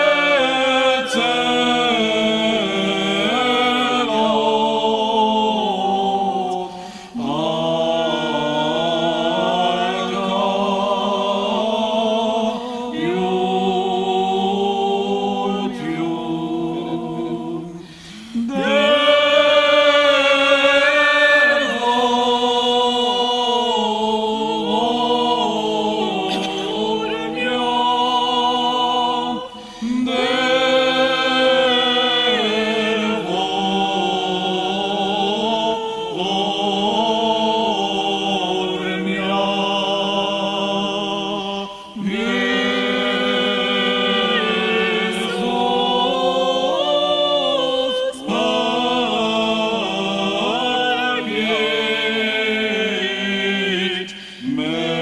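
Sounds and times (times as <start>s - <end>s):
group chanting: 0.0s - 55.0s.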